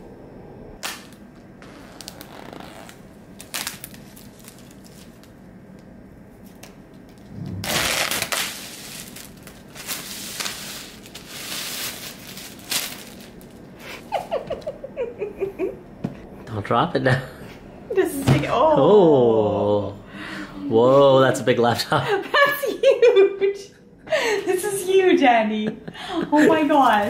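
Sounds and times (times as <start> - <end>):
plastic shrink-wrap crinkling: 2.0 - 5.4, 7.6 - 13.6.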